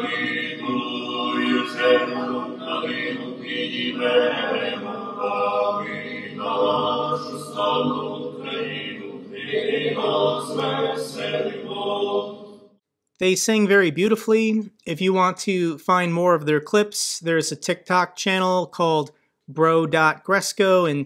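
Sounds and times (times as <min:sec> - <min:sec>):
men singing a cappella in harmony: 0:00.0 - 0:12.6.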